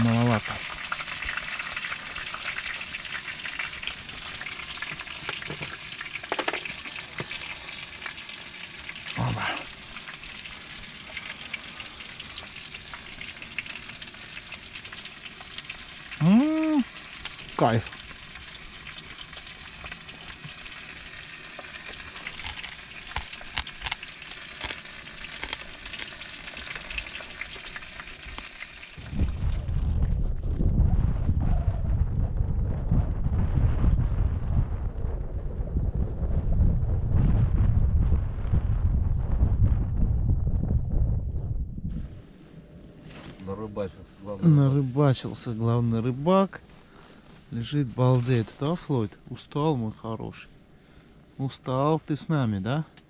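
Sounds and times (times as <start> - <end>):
fish sizzling in a pan: 0.0 - 29.9
wind buffeting microphone: 29.0 - 42.2.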